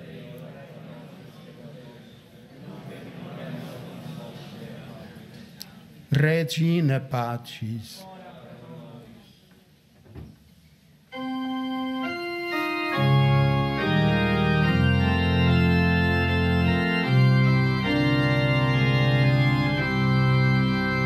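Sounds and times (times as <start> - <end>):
organ playing a hymn: 11.1 - 21.0.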